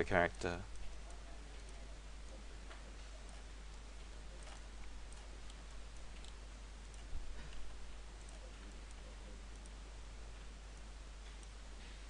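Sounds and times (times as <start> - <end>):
steady hiss and hum: 0.0 - 12.0
computer mouse clicks: 2.7 - 9.8, 10.8 - 12.0.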